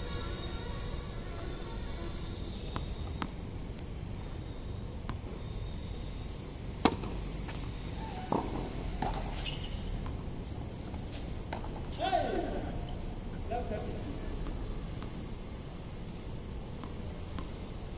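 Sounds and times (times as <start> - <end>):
steady background noise: 0.0 - 17.9
racket striking ball: 6.8 - 9.4
tennis ball bouncing on court: 6.8 - 10.2, 14.4 - 15.3, 16.7 - 17.8.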